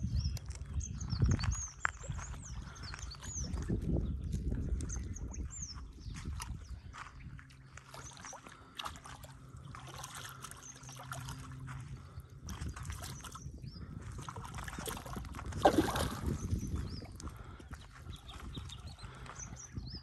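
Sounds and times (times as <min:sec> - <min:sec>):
fish thrashing and splashing: 0:07.7 - 0:17.5.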